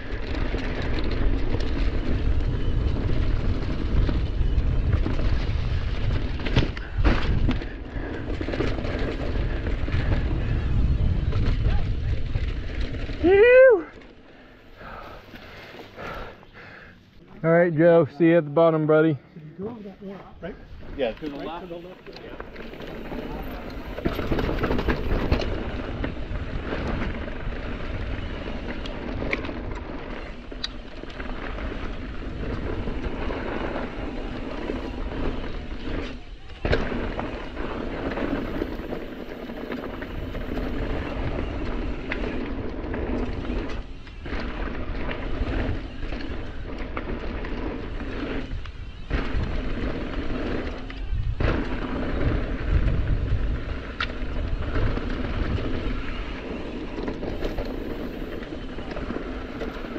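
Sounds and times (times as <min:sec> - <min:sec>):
wind buffeting microphone: 0:00.0 - 0:13.9, 0:19.8 - 0:59.9
bike rattling over bumps: 0:00.0 - 0:16.9, 0:19.6 - 0:59.9
bike tyres on dirt and rock: 0:00.0 - 0:18.4, 0:19.0 - 0:59.9.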